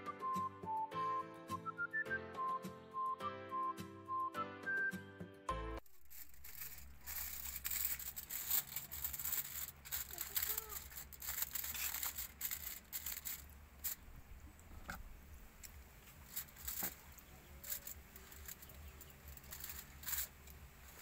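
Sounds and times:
aluminium foil crinkling: 5.8s - 15.0s, 15.6s - 21.0s.

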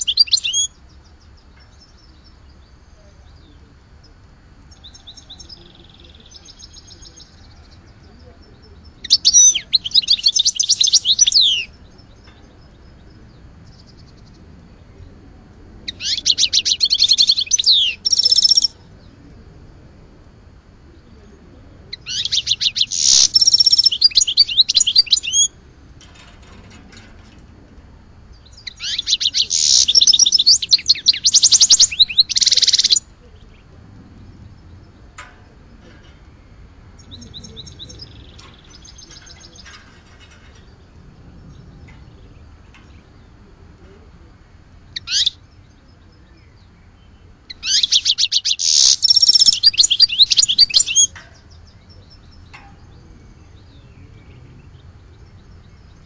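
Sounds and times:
songbird twittering trills: 0.0s - 56.0s
faint bird calls: 15.9s - 19.4s, 20.3s - 27.4s, 28.1s - 56.0s.

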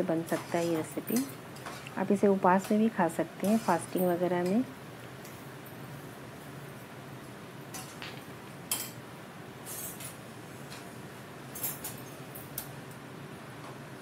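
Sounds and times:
low background hum: 0.0s - 14.0s
utensils and dishes clinking: 0.2s - 1.9s, 7.7s - 9.0s, 9.6s - 10.8s, 11.5s - 12.7s.

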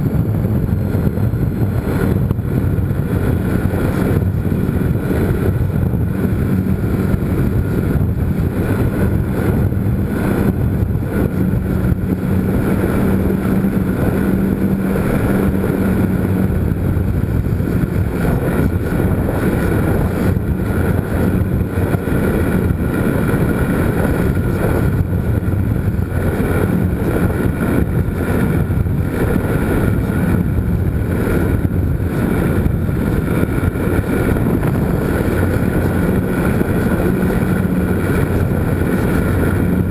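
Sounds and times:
air rushing over microphone: 0.0s - 39.9s
model airplane motor buzzing: 0.0s - 39.9s.

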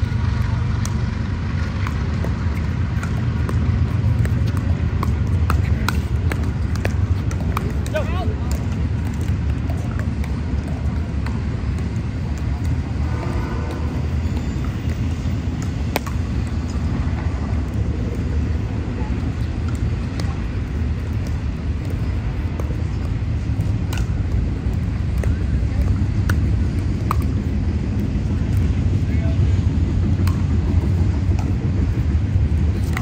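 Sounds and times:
steady low rumble: 0.0s - 33.0s
paddle striking ball pops: 27.0s - 27.4s.

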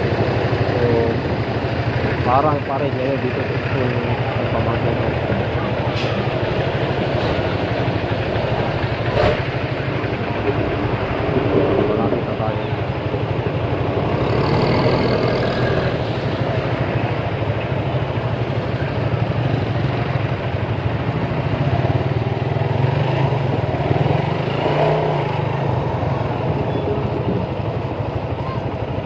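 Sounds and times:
motorcycle engine running: 0.0s - 15.7s
surrounding traffic: 0.0s - 29.0s.

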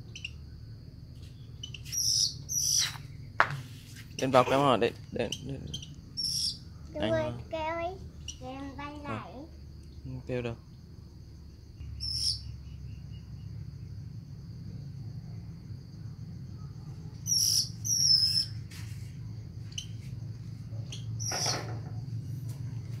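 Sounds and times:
bird calling in high chirps: 0.0s - 0.4s, 1.3s - 3.4s, 4.0s - 6.8s, 8.2s - 8.6s, 11.8s - 13.0s, 17.2s - 18.6s, 20.8s - 21.6s
high insect drone: 0.0s - 23.0s.

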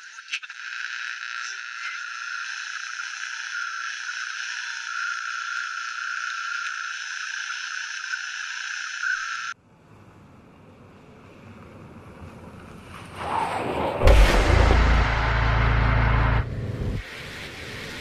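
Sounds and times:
low rumbling: 11.8s - 17.0s.

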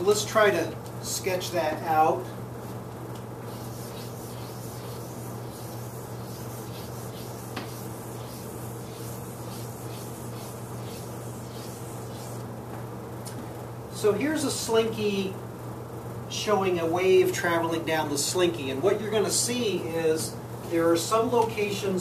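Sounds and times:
steady low hum: 0.0s - 22.0s
chalk scraping on blackboard: 3.5s - 12.4s.

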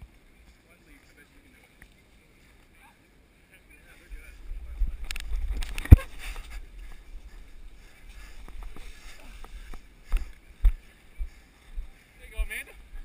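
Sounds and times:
low rumbling: 4.1s - 12.0s.

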